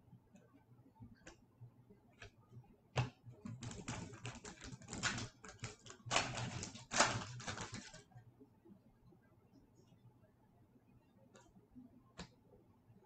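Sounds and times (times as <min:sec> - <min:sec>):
wrapper crackling and crinkling: 0:04.5 - 0:08.0.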